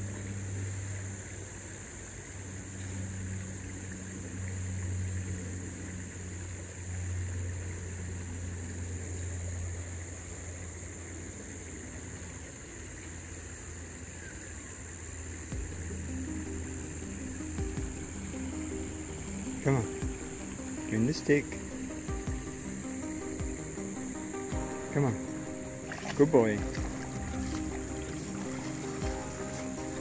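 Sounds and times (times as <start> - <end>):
low engine-like hum: 0.0 - 30.0
high-pitched buzz: 15.5 - 30.0.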